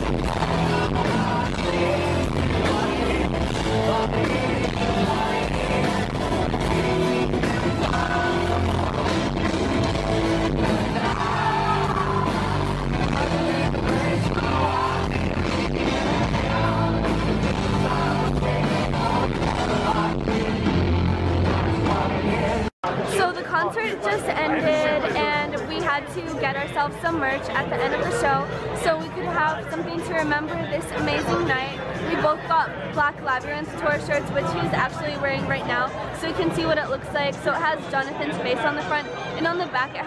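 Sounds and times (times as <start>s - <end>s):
live rock band: 0.0s - 22.7s
man singing: 0.0s - 22.7s.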